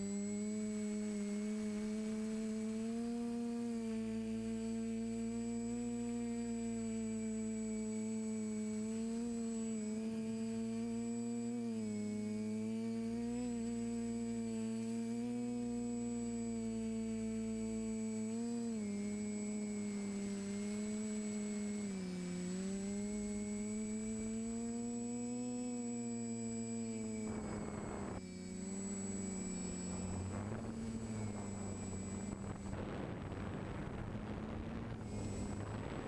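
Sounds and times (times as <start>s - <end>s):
drone motors whining: 0.0s - 36.0s.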